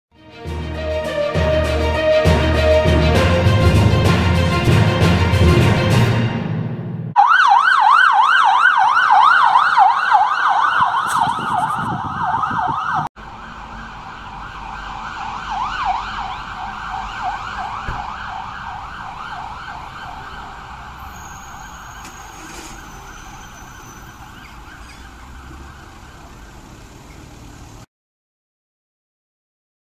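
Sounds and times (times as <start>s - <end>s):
intro music: 0.2s - 7.2s
ambulance siren yelp: 0.4s - 4.1s, 7.2s - 27.9s.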